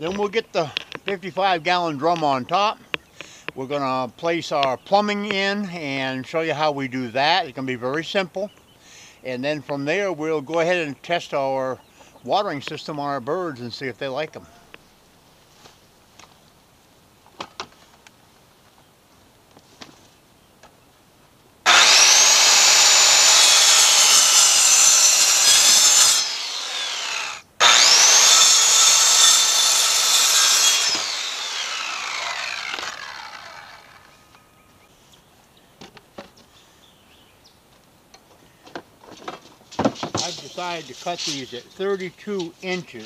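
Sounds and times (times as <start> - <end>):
circular saw cutting wood: 21.7 - 34.3
saw blade winding down whine: 21.7 - 34.4.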